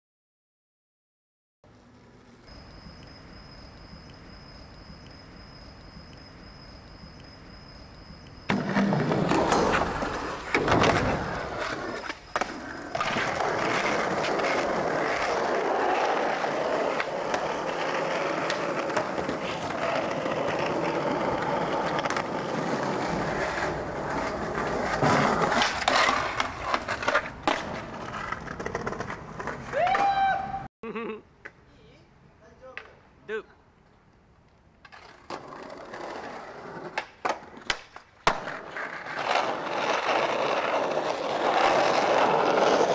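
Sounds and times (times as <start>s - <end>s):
skateboard wheels rolling on pavement: 1.7s - 30.6s, 33.7s - 42.9s
skateboard clacking on ground: 8.5s - 30.2s, 34.8s - 42.9s.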